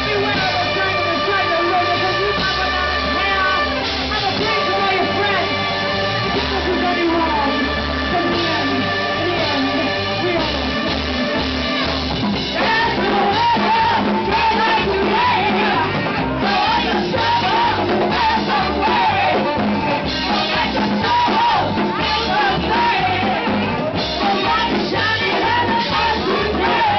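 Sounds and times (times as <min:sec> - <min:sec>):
drum beat: 0:00.0 - 0:26.9
saxophone: 0:00.0 - 0:26.9
woman singing: 0:12.6 - 0:26.9.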